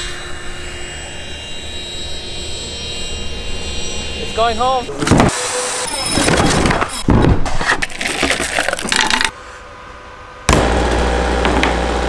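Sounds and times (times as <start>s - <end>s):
hard plastic parts clattering: 6.2s - 9.3s.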